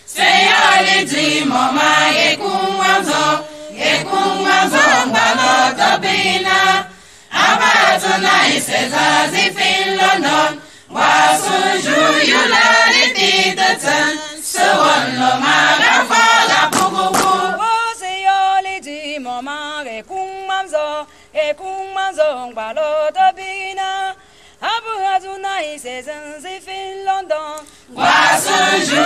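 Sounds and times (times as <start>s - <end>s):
choir singing chant-like song: 0.0s - 18.1s, 27.9s - 29.0s.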